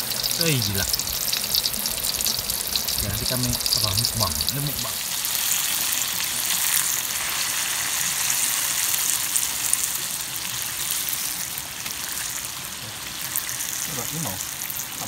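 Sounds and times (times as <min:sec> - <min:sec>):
oil popping: 0:00.0 - 0:05.2
oil sizzling in a wok: 0:00.0 - 0:15.0.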